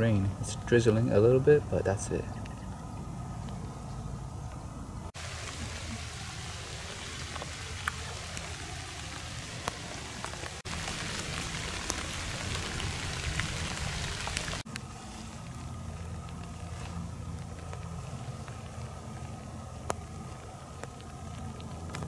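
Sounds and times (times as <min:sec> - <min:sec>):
steady rain falling: 0:05.1 - 0:22.0
sharp ticks of raindrops: 0:05.2 - 0:22.0.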